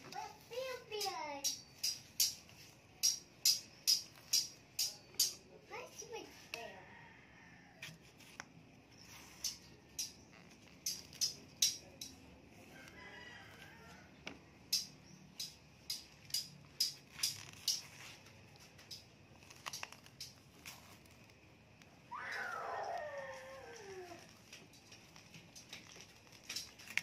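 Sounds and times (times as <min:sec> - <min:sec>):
bananas being peeled: 0:00.0 - 0:27.0
faint animal call: 0:22.1 - 0:24.4.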